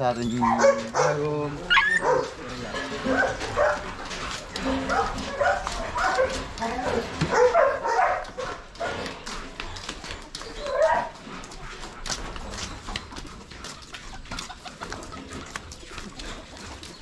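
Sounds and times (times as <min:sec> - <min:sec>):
dog yelp: 0:00.3 - 0:02.4, 0:03.0 - 0:09.1, 0:10.2 - 0:11.2.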